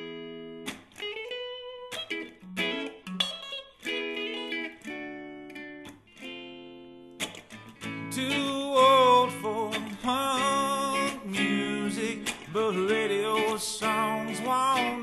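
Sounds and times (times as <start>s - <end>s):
strummed acoustic guitar: 7.2s - 15.0s.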